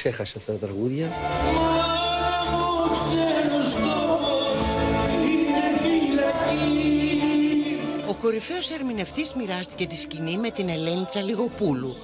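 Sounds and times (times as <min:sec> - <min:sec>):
man singing: 0:01.4 - 0:12.0.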